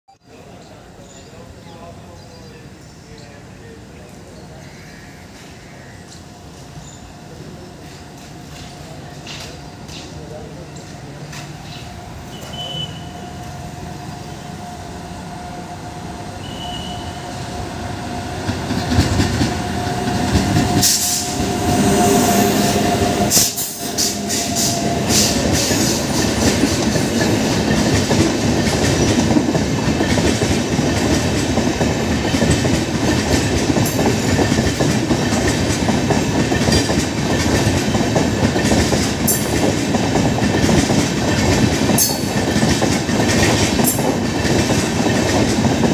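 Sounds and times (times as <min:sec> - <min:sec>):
electric locomotive whine: 0:05.2 - 0:45.9
train wheels clattering over rail joints: 0:23.3 - 0:45.9.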